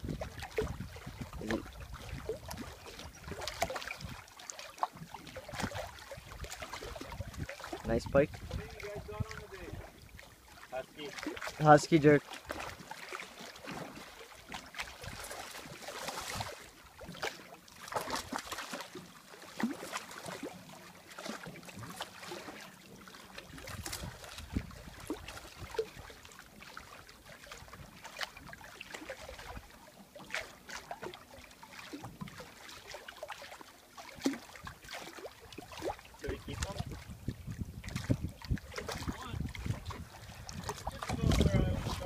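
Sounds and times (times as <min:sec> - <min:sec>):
fish thrashing in water: 0:00.0 - 0:09.8, 0:11.1 - 0:42.0
small waves lapping: 0:00.0 - 0:42.0.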